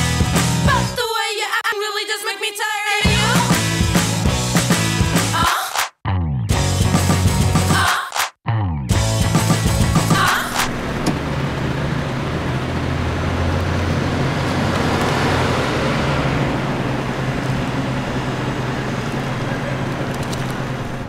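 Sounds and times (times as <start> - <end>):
low engine hum: 10.5 - 21.0
road and traffic noise: 10.6 - 21.0.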